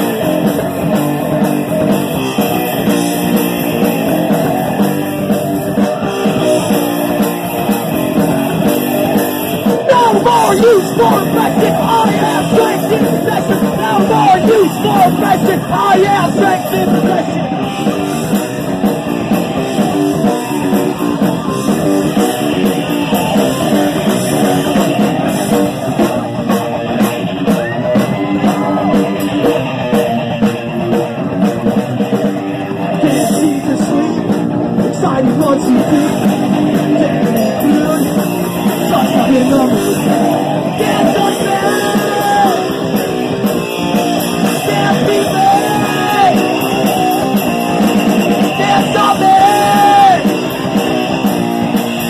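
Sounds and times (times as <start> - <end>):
heavy rock band playing: 0.0 - 52.0
person singing: 9.6 - 17.7, 32.8 - 43.1, 44.3 - 47.4, 48.4 - 50.5.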